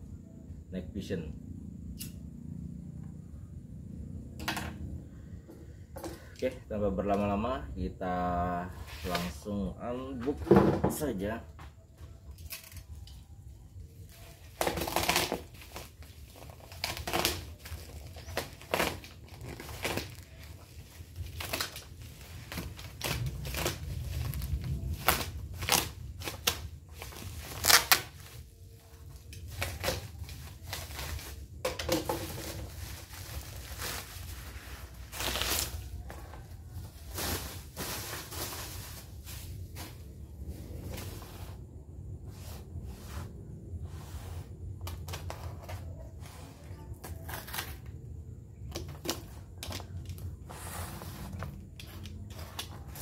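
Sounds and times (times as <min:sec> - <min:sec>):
plastic wrapping crinkling and tearing: 0:14.0 - 0:40.0, 0:47.0 - 0:48.0.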